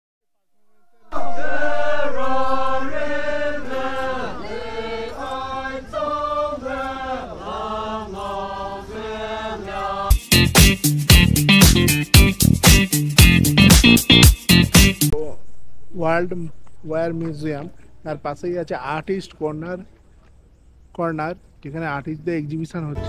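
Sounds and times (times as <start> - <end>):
group chanting in unison: 1.0 - 10.1
upbeat funk music: 10.1 - 15.2.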